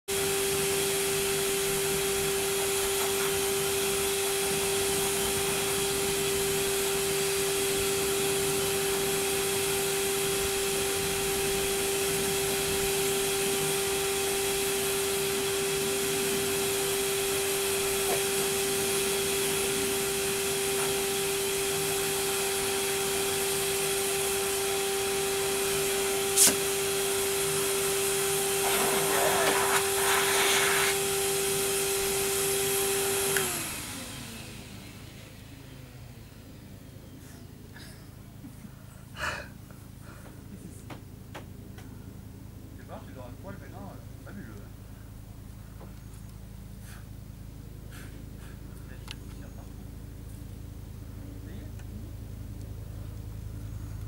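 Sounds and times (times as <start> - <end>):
grooming blower motor whine: 0.1 - 54.0
short sharp click: 26.4 - 26.6.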